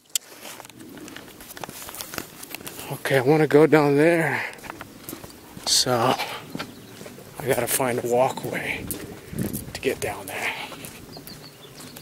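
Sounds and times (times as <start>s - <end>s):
camera handling rustle: 0.2s - 2.8s
footsteps on grass and stone: 0.2s - 12.0s.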